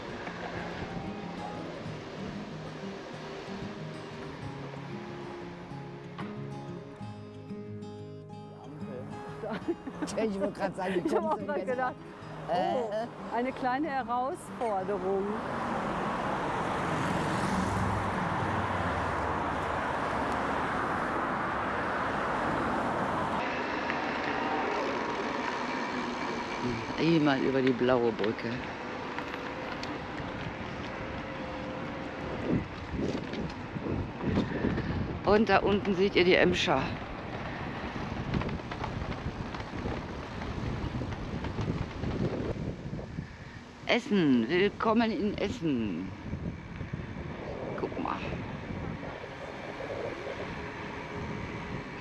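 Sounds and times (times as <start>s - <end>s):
rushing wind and rolling noise: 0.0s - 5.8s, 9.0s - 52.0s
wind rushing over microphone: 30.0s - 43.8s, 44.5s - 52.0s.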